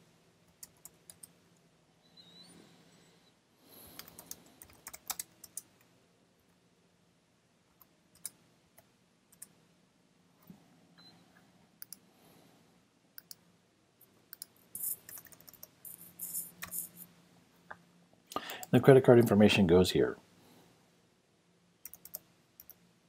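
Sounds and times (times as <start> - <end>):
computer mouse clicks: 0.5 - 1.4, 3.9 - 5.8, 7.7 - 9.6, 11.8 - 12.1, 13.2 - 13.4, 14.3 - 17.0, 21.8 - 22.8.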